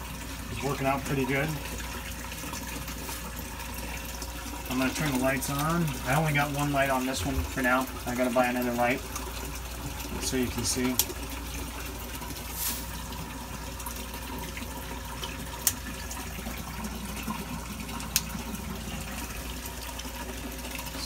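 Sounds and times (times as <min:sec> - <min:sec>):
water splashing: 0:09.0 - 0:21.0.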